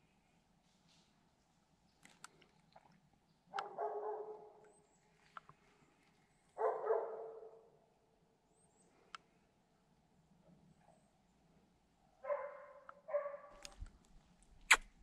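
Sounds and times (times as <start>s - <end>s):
dog barking: 3.5s - 4.6s, 6.6s - 7.7s, 12.2s - 13.6s.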